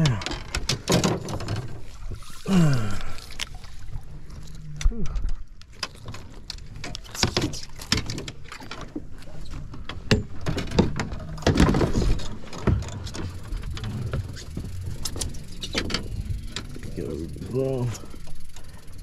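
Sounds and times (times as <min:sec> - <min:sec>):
knocks and rattles on boat deck: 0:00.0 - 0:01.9, 0:05.8 - 0:16.9.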